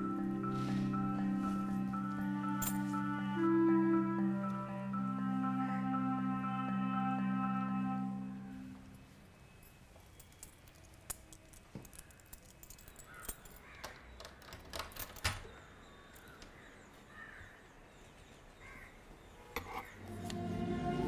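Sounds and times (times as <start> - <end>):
door lock clacking: 11.2 - 15.6.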